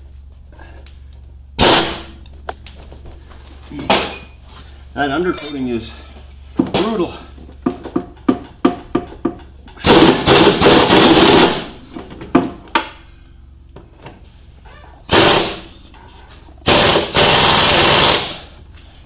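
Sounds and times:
pneumatic impact wrench hammering: 1.6 - 2.2, 9.8 - 11.8, 15.1 - 15.8, 16.6 - 18.5.

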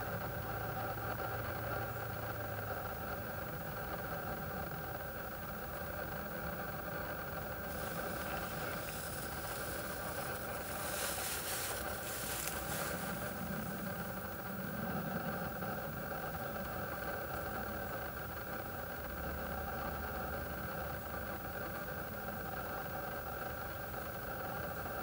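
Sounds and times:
mechanical hum with low rumble: 0.0 - 25.0
hiss: 7.7 - 14.4.

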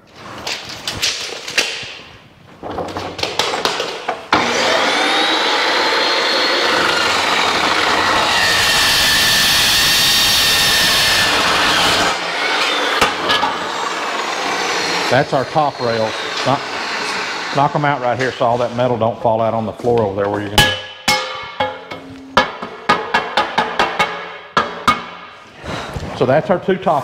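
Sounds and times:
chop saw grinding steel: 4.3 - 18.9
metal knocks and clanks: 20.2 - 25.4.

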